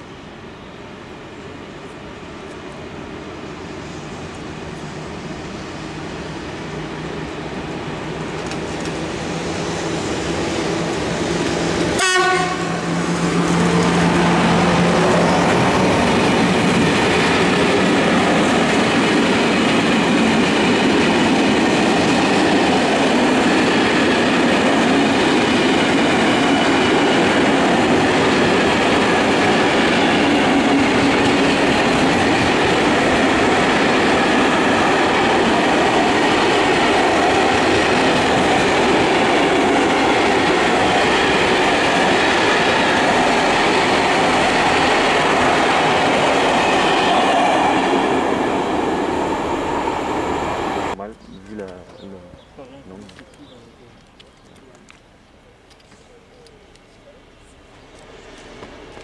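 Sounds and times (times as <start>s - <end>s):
electric locomotive motor hum: 0.1s - 51.1s
train horn blast: 11.9s - 14.0s.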